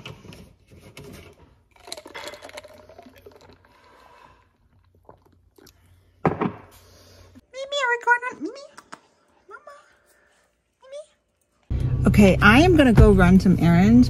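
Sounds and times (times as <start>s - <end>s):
sipping through a straw: 1.8s - 5.9s
wet mouth clicks: 4.6s - 5.9s.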